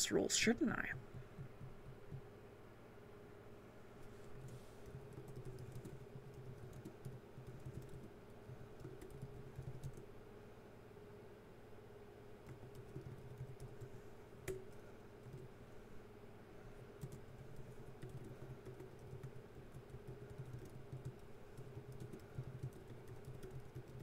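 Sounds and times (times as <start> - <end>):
steady low hum: 0.0 - 24.0
computer keyboard typing: 4.4 - 10.0, 12.4 - 13.9, 17.0 - 24.0.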